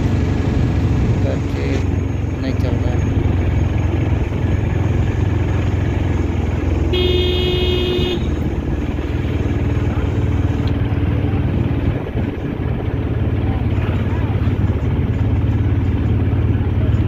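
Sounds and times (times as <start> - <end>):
auto-rickshaw engine running: 0.0 - 17.0
road noise: 0.0 - 17.0
vehicle horn honking: 6.8 - 8.5.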